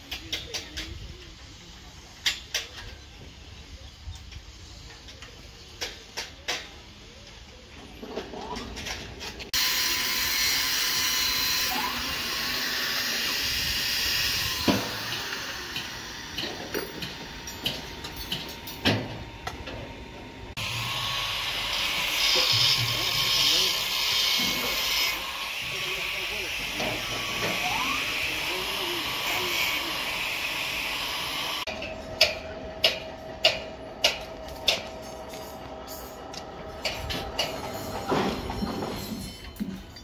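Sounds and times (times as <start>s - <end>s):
angle grinder cutting steel: 9.5s - 18.7s, 20.5s - 38.1s.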